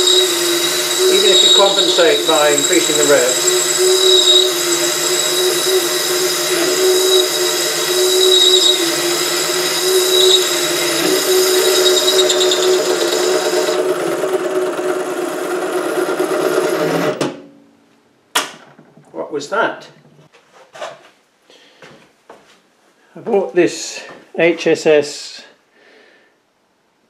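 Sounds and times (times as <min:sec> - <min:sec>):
hiss of cutting metal: 0:00.0 - 0:13.7
lathe motor and gear whine: 0:00.0 - 0:17.2.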